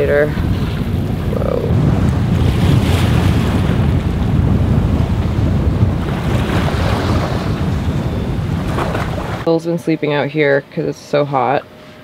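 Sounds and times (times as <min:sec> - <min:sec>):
waves washing against boat: 0:00.0 - 0:09.6
wind buffeting microphone: 0:00.0 - 0:09.6.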